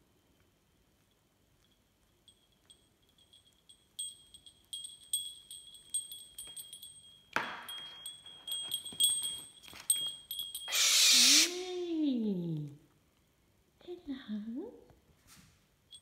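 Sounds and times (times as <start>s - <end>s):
small metal bell jingling: 1.5s - 11.0s.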